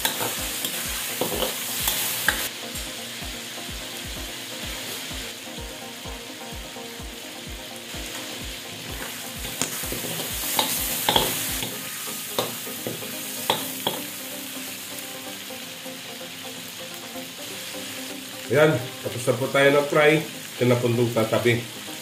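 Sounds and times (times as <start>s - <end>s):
metal spatula scraping wok: 0.0s - 2.5s, 9.0s - 14.1s
food sizzling in hot oil: 0.0s - 22.0s.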